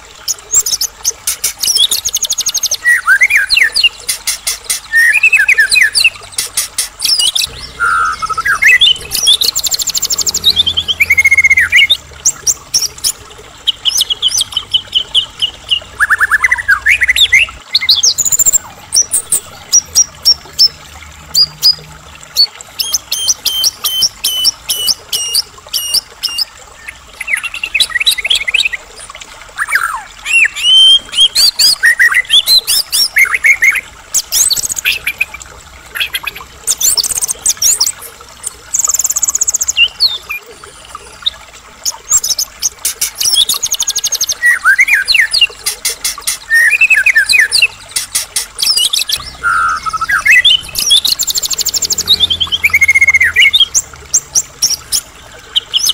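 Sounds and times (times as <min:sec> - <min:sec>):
songbird whistling and trilling: 0:07.0 - 0:12.0, 0:46.5 - 0:47.7, 0:48.6 - 0:53.8.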